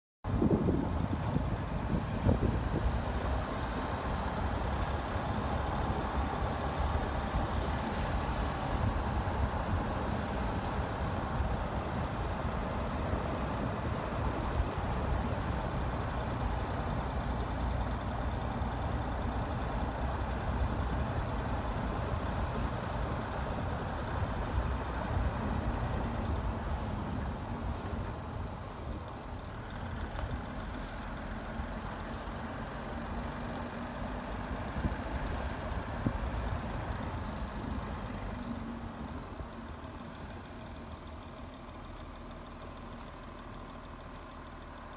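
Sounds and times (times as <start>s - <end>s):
vehicle engine running: 0.2s - 44.9s.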